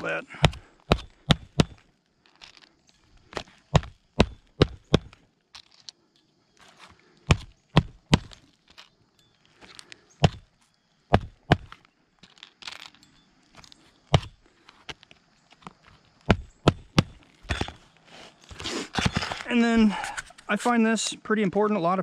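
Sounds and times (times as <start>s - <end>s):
hatchet hammering nails into shingles: 0.0s - 1.8s, 3.4s - 5.2s, 7.3s - 8.4s, 10.2s - 10.5s, 11.1s - 11.8s, 16.2s - 17.8s
nails rustling and clinking: 0.6s - 6.9s, 7.5s - 10.8s, 11.4s - 20.4s.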